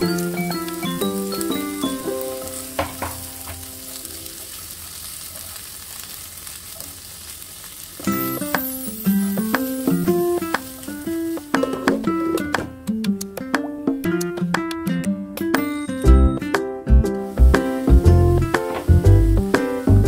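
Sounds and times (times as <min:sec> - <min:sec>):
light background music: 0:00.0 - 0:03.8, 0:08.1 - 0:20.0
vegetables sizzling in oil: 0:00.0 - 0:12.6, 0:15.6 - 0:20.0.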